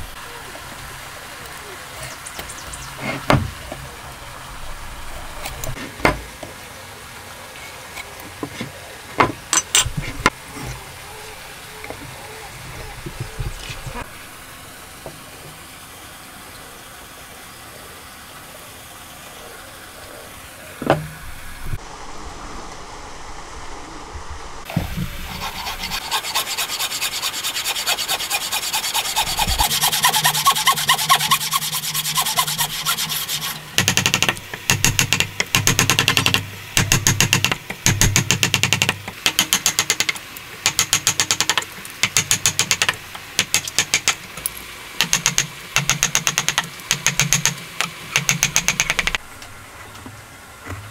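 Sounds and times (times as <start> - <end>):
hand saw cutting wood: 24.7 - 40.0.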